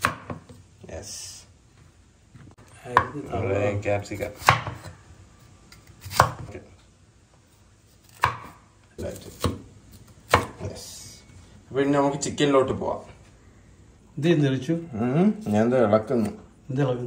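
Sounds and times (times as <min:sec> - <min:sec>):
knife chopping on wooden board: 0:00.0 - 0:00.6, 0:04.2 - 0:04.9, 0:06.0 - 0:06.6, 0:08.0 - 0:09.7, 0:10.3 - 0:10.6.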